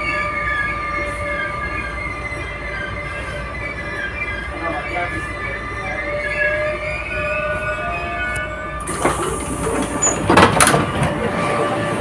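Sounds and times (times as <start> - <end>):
train humming with held tones: 0.0 - 12.0
train doors opening: 3.1 - 12.0.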